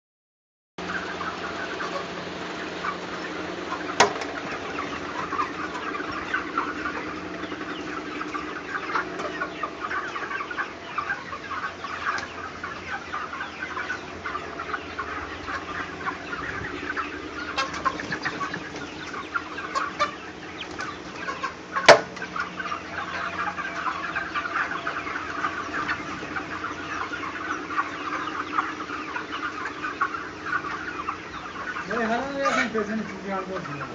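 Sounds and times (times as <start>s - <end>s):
chicks peeping: 0.8s - 33.9s.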